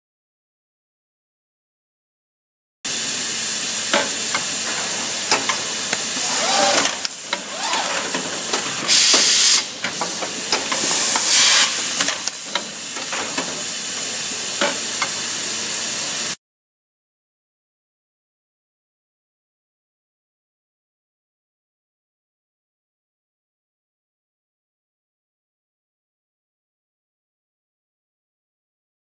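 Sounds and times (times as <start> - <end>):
machine hissing steadily: 2.9 - 16.4
pneumatic air hiss bursts: 3.9 - 13.1.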